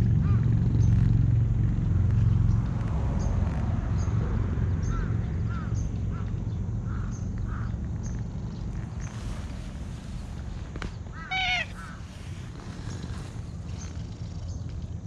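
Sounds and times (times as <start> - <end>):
faint bird calls: 4.8 - 14.9
cat purring: 7.9 - 15.0.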